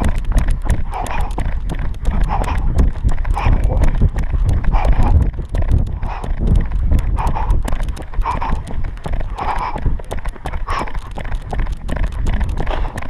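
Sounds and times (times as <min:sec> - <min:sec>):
hard breathing: 0:00.0 - 0:13.0
running footsteps on pavement: 0:00.0 - 0:13.0
wind buffeting microphone: 0:00.0 - 0:13.0.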